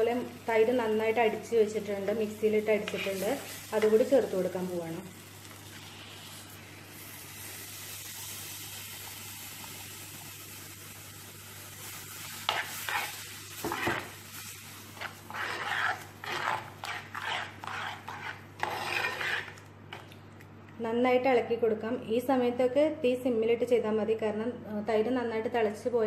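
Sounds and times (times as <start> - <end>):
masala sizzling in a pot: 0.0 - 20.0
steel spoon stirring and scraping: 2.7 - 4.5, 12.4 - 20.0.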